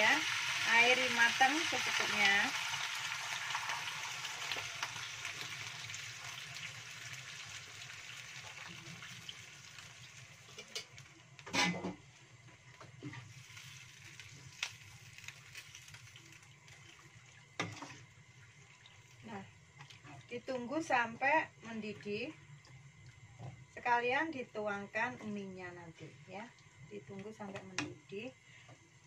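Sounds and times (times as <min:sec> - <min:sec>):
water sizzling in hot wok: 0:00.0 - 0:19.4.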